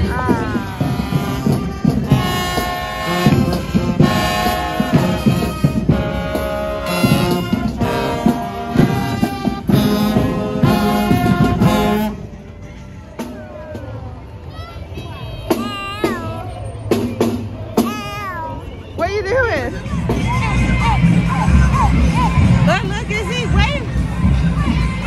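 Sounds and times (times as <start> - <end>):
marching band brass playing: 0.0 - 12.5.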